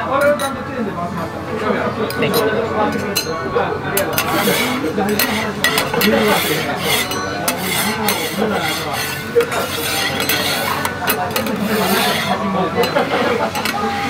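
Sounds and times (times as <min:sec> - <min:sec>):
metal spatulas scraping griddle: 0:04.0 - 0:13.9.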